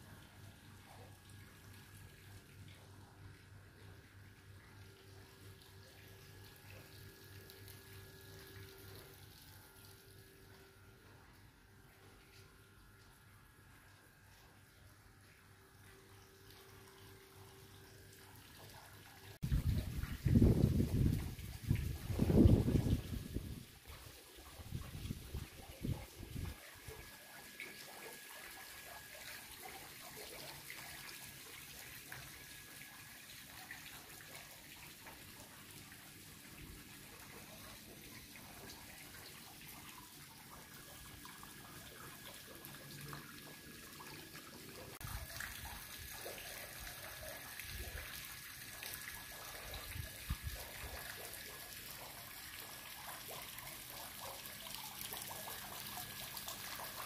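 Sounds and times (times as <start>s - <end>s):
fountain water trickling: 0.0s - 57.0s.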